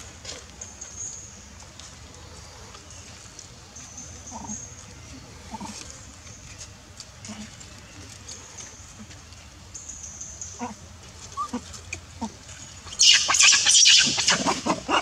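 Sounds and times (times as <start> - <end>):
faint short monkey calls: 13.0 - 15.0
monkey screeching: 13.0 - 15.0.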